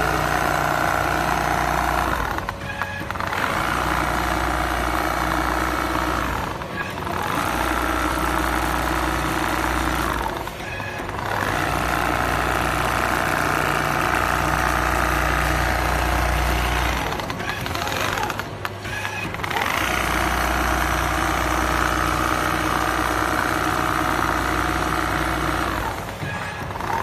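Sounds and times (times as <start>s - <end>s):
sewing machine running: 0.0s - 27.0s.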